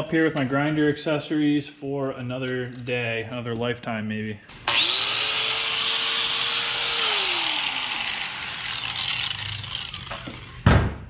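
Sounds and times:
angle grinder whining and winding down: 0:04.5 - 0:10.7.

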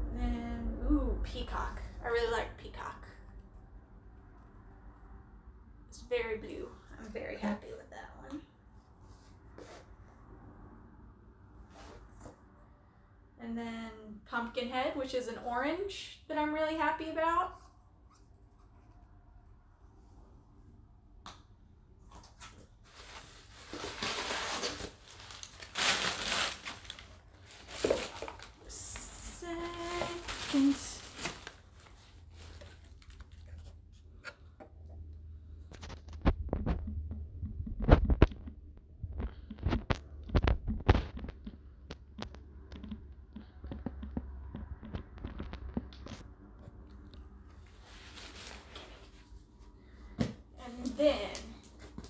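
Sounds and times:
low rumble: 0:00.0 - 0:02.6
cardboard box rustling: 0:23.0 - 0:28.6
sharp knocks and clicks: 0:36.3 - 0:46.0.

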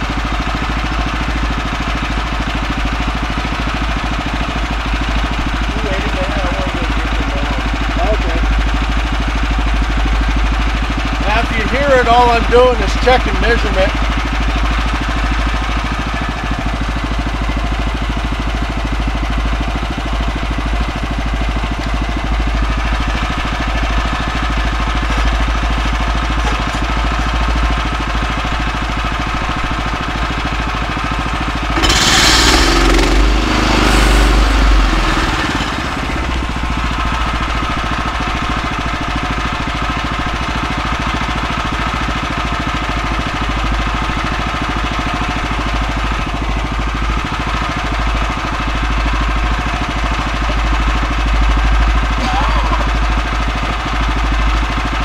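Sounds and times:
sawmill engine idling: 0:00.0 - 0:55.0
loud rushing burst: 0:31.7 - 0:37.0.

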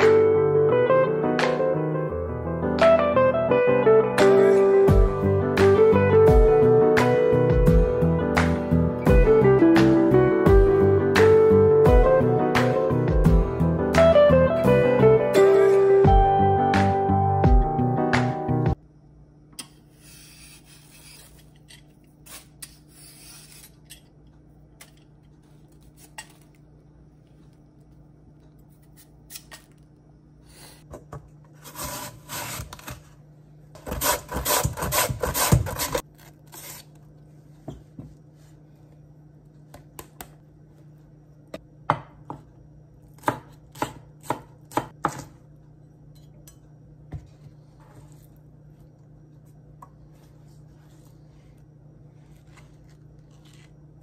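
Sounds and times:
steady low hum: 0:18.7 - 0:54.0
vegetable peeler scraping: 0:19.9 - 0:24.0, 0:31.6 - 0:33.0, 0:33.8 - 0:37.0, 0:52.4 - 0:53.8
knife chopping on wooden board: 0:43.2 - 0:45.4.

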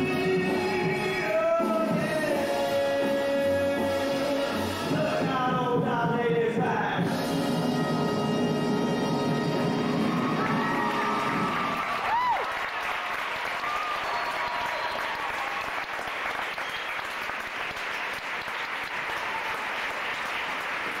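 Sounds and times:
swing music: 0:00.0 - 0:11.8
audience applauding: 0:09.5 - 0:21.0
rising and falling cry from crowd: 0:09.7 - 0:16.1.

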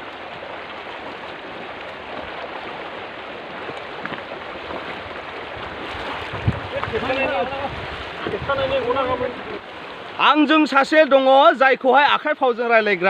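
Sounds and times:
shallow river water running: 0:00.0 - 0:13.0.

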